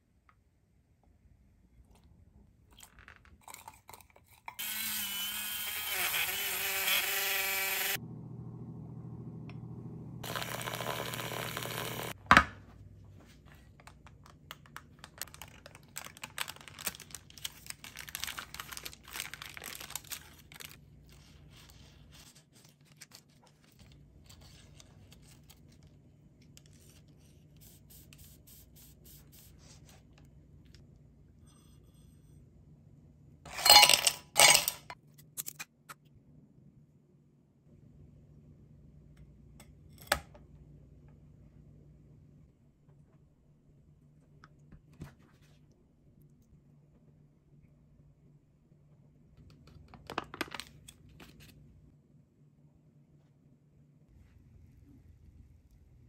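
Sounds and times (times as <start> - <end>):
small electric motor whirring: 4.6 - 8.0, 10.2 - 12.2
paper rustling: 13.1 - 26.0, 49.6 - 51.6.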